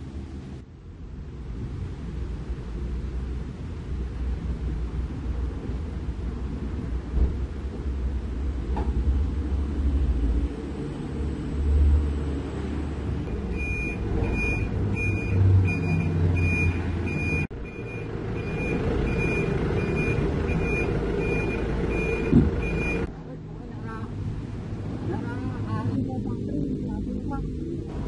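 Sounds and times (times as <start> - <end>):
diesel engine running: 1.3 - 23.1
backup alarm beeping: 13.3 - 23.1
short thump: 22.3 - 22.7.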